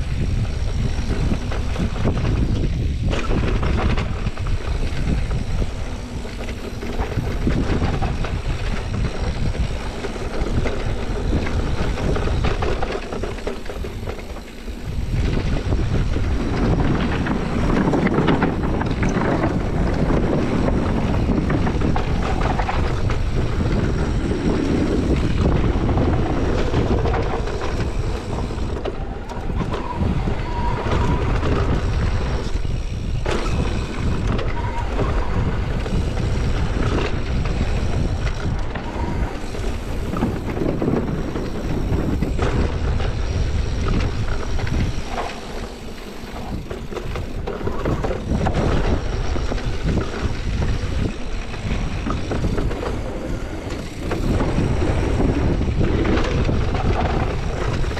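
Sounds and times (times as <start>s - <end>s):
bike rumbling down dirt trail: 0.0s - 57.9s
wind buffeting microphone: 0.0s - 57.9s.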